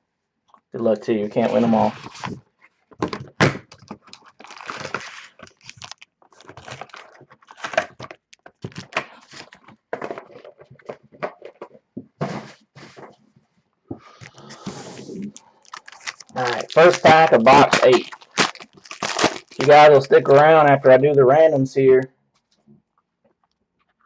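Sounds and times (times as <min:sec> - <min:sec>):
cardboard scraping and rustling: 0:01.6 - 0:03.3, 0:03.9 - 0:13.3.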